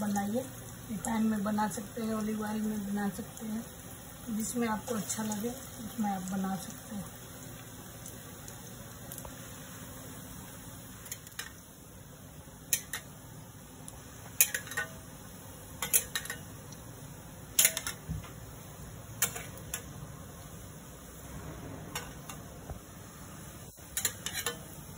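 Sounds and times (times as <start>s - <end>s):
deep-frying sizzle: 0.0s - 24.9s
metal spatula clinking on pan: 12.7s - 13.1s, 14.4s - 15.0s, 15.8s - 16.5s, 17.6s - 18.0s, 19.2s - 19.9s, 23.9s - 24.7s.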